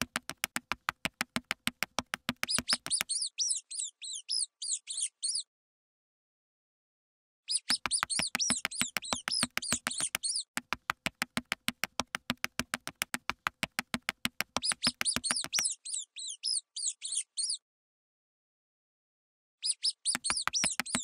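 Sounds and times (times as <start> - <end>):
sharp ticks: 0.0 - 3.1, 7.7 - 15.6, 20.1 - 21.0
mouse squeaking: 2.3 - 5.4, 7.5 - 10.5, 14.6 - 17.6, 19.6 - 21.0.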